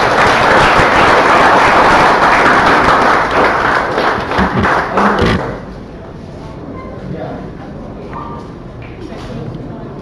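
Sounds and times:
people applauding: 0.0s - 5.6s.

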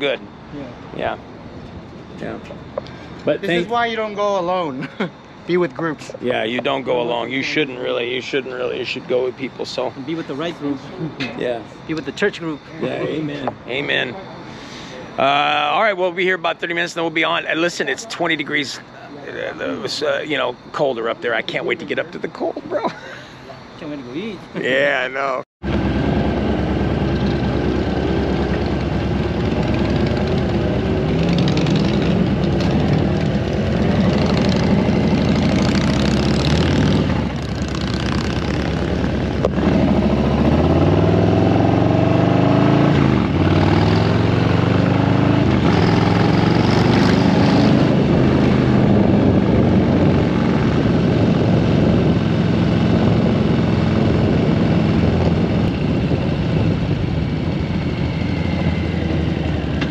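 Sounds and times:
motorcycle engine accelerating: 25.6s - 59.9s.

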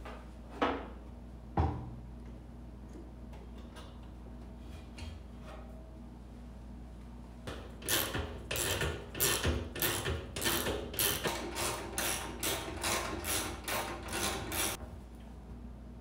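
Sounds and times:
hand ratchet clicking: 7.5s - 14.8s.

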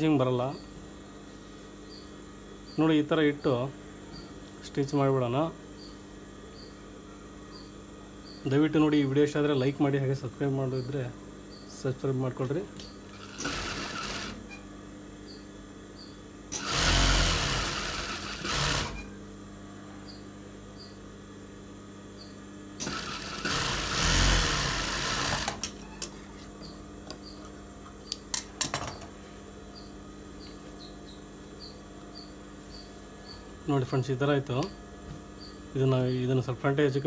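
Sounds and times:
sewing machine stitching: 13.1s - 14.4s, 16.6s - 19.0s, 22.8s - 25.7s.

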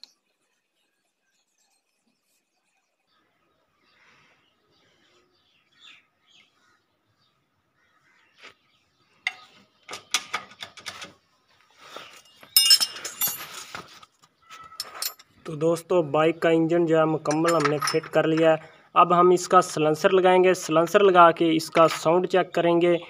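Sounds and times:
wrench clinking on metal: 12.2s - 13.6s, 14.7s - 15.4s, 17.3s - 18.6s.

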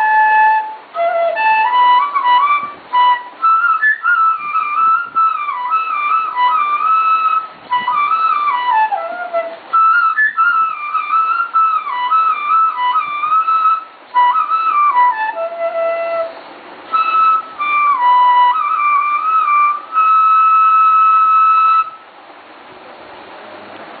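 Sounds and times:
high-pitched instrument melody: 0.0s - 22.0s.

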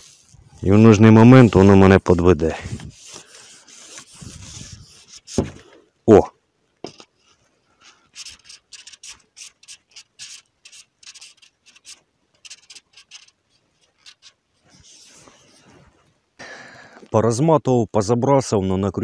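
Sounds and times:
hands rubbing fishing tackle: 0.0s - 5.7s, 6.8s - 16.2s.

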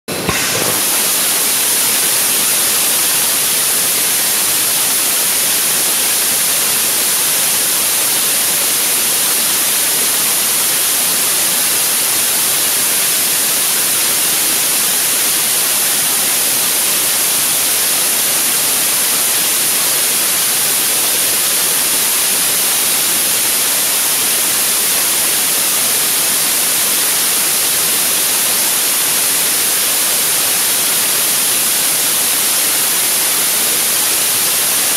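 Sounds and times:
rocket engine roar: 0.1s - 4.5s.

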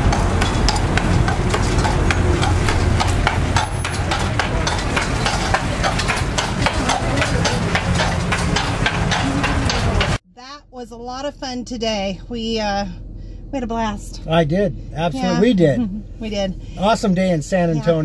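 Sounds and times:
horse hooves clopping on pavement: 0.0s - 10.2s
vehicle engines idling: 0.0s - 10.2s, 11.1s - 18.0s.

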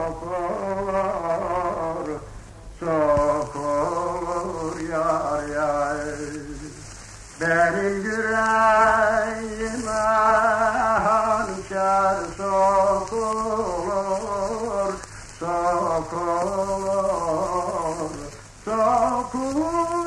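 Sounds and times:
man singing folk song: 0.0s - 20.0s
old disc hiss: 0.0s - 20.0s.

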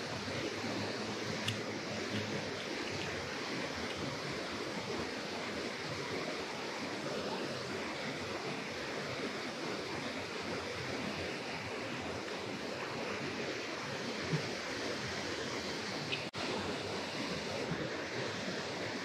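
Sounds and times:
water rushing over a dam: 0.0s - 19.0s.

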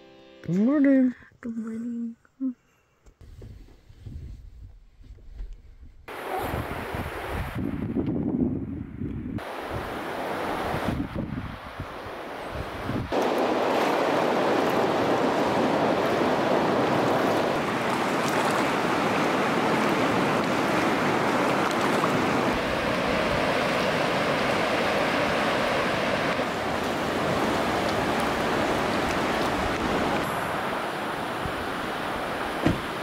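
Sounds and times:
river water flowing: 6.1s - 7.3s, 9.4s - 33.0s.

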